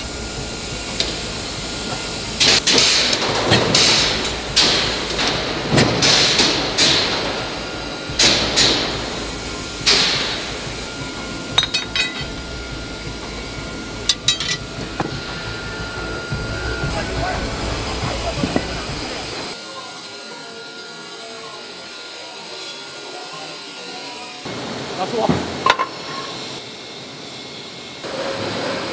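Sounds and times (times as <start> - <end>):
forging press blows: 0.0 - 19.6
machine whine: 0.0 - 25.3.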